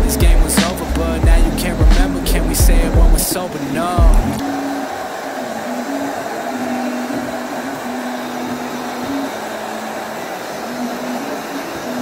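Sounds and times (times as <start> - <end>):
hair dryer blowing: 3.5 - 12.0.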